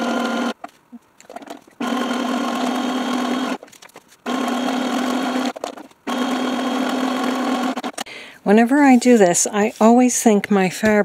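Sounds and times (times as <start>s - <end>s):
sewing machine humming: 0.0s - 0.6s, 1.3s - 3.6s, 4.2s - 8.1s.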